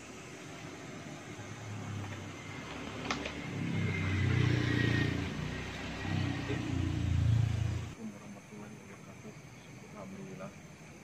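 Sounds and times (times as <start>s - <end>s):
engine rumbling: 1.1s - 8.0s.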